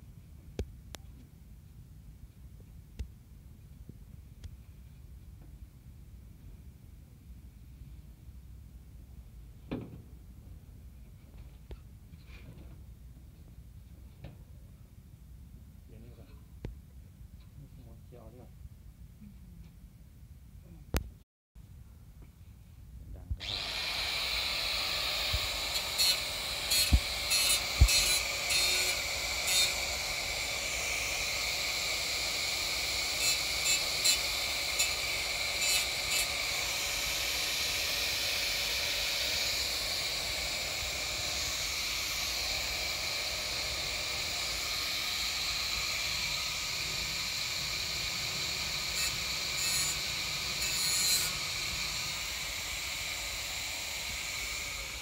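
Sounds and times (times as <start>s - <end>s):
angle grinder whine: 23.4s - 55.0s
grinder disc grinding steel: 23.4s - 55.0s.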